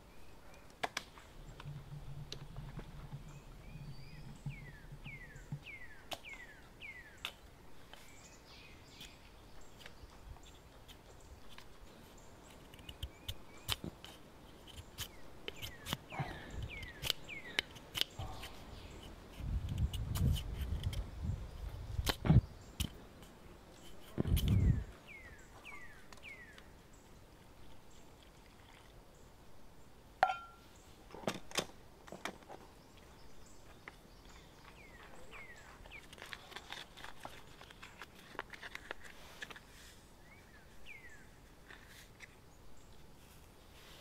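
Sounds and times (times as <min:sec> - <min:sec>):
bird chirping: 0:00.0 - 0:23.1, 0:23.7 - 0:28.2, 0:32.5 - 0:38.1, 0:40.2 - 0:41.4
packet crinkling: 0:35.9 - 0:39.6.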